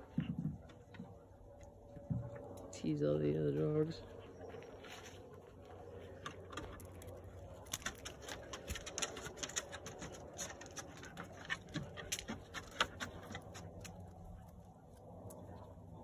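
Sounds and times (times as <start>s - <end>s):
dog claws clicking on wood: 6.2s - 15.4s.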